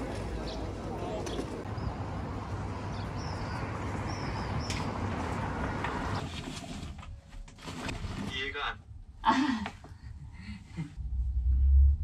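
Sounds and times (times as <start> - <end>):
traffic hum: 0.0 - 7.2.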